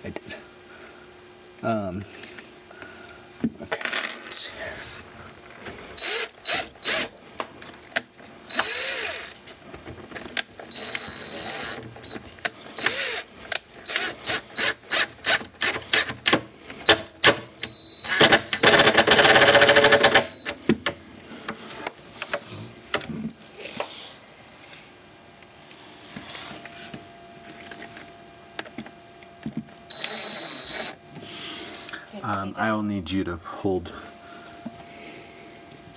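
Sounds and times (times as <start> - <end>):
impact driver hammering rattle: 18.1 - 20.4.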